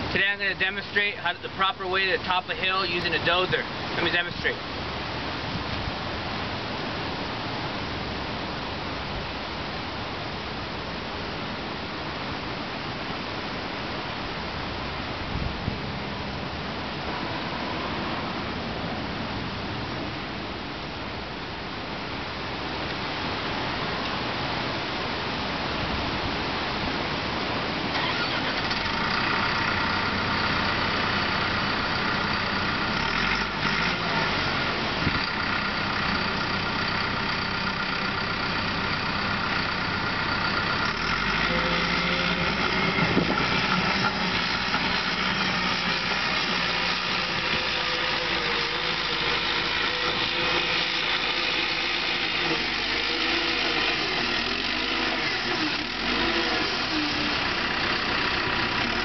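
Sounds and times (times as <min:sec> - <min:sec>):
bulldozer diesel engine under load: 0:00.0 - 0:09.1, 0:25.8 - 0:59.0.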